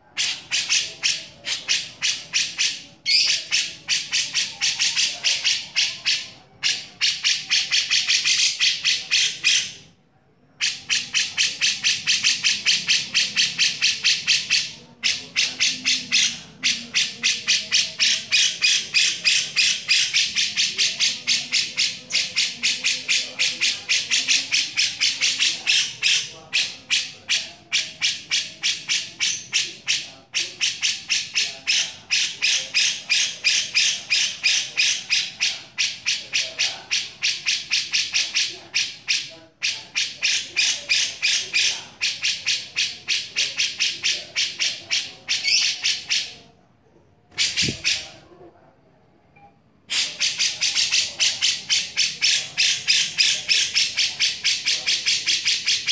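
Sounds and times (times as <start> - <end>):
bulbul rasping chattering call: 0.1 - 9.8, 10.6 - 46.4.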